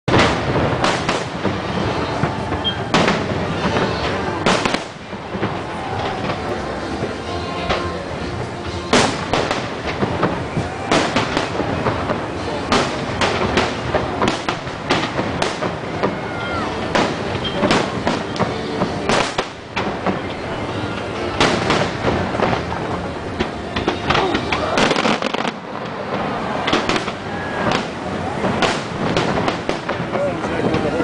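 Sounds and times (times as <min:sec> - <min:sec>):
firework crackle: 0:00.0 - 0:31.0
firework shells banging: 0:00.1 - 0:31.0.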